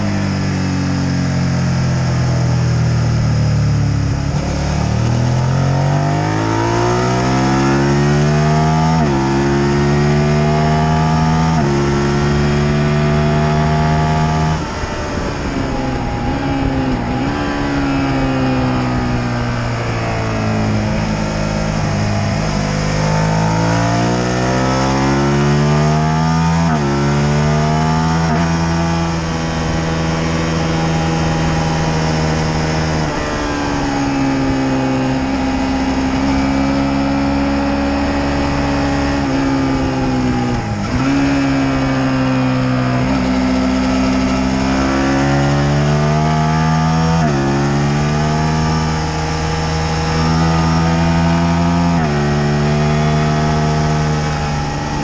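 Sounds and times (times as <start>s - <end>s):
motorcycle engine revving: 0.0s - 55.0s
wind rush: 11.6s - 25.3s, 26.3s - 45.4s.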